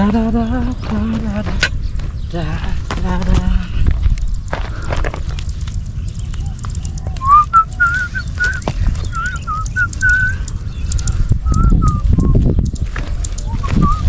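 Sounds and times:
plant stems rustling and snapping: 2.9 - 14.0
person whistling a tune: 7.2 - 10.4, 11.4 - 12.4, 13.5 - 14.0.

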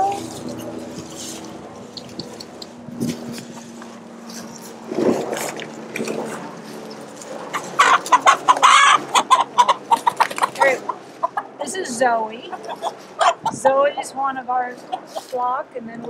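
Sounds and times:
chickens clucking: 0.0 - 15.4
hen squawking loudly: 7.6 - 11.4.

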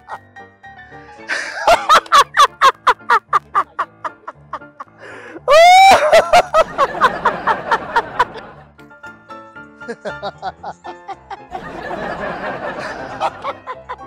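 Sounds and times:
background music: 0.0 - 14.0
man laughing loudly: 1.3 - 8.4, 9.9 - 14.0.

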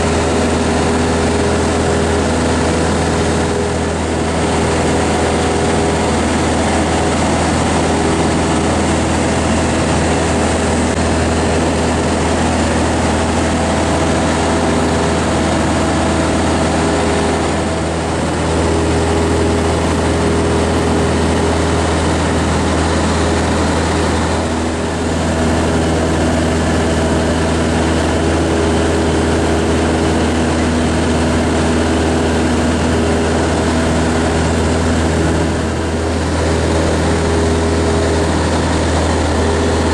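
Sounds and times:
light aircraft engine droning: 0.0 - 39.9.

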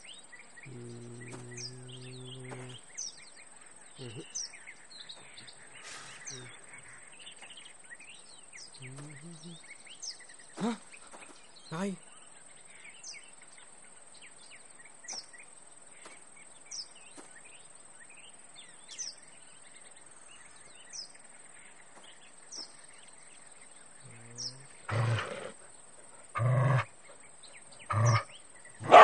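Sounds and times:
birds chirping faintly: 0.0 - 29.0
dog growling low: 0.6 - 2.9, 24.0 - 26.9, 27.8 - 29.0
dog barking loudly: 28.8 - 29.0.

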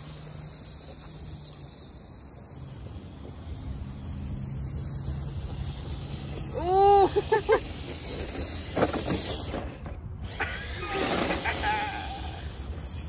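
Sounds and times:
electric motor whine: 0.0 - 13.0
tyres on dry grass: 0.0 - 13.0
toy truck tipping over knocks: 7.9 - 10.0.

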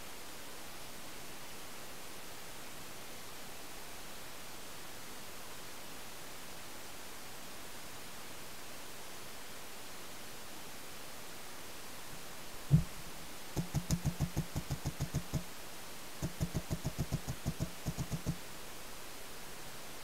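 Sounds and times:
paintball marker shots: 13.6 - 15.5, 16.2 - 18.4.

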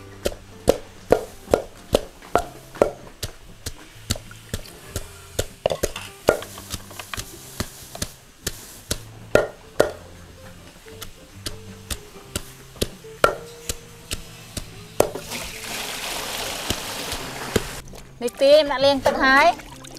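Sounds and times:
knife chopping food: 0.2 - 10.0, 10.9 - 15.5.

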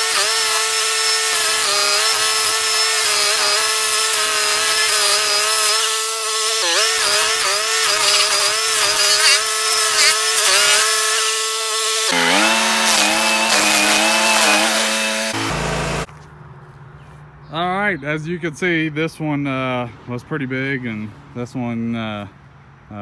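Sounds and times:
stump grinder engine labouring: 0.0 - 16.1.

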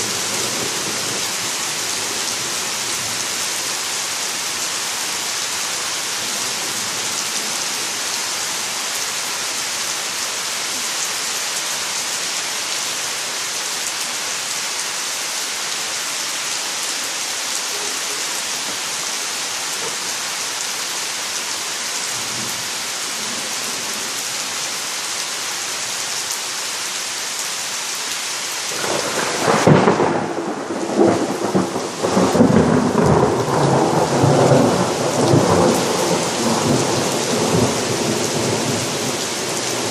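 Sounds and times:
heavy rain falling: 0.0 - 39.9
thunder rumbling: 28.8 - 39.9.

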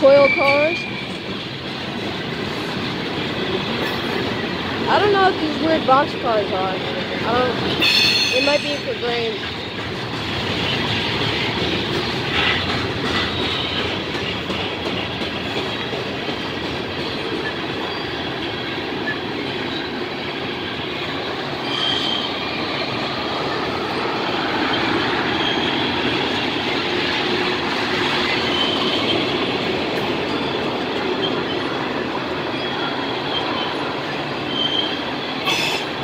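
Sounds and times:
high wheel squeals: 0.0 - 1.3, 7.8 - 9.8, 20.6 - 26.2, 28.3 - 29.3, 30.2 - 33.8, 34.4 - 36.0
steel wheels on rail: 0.0 - 36.0.

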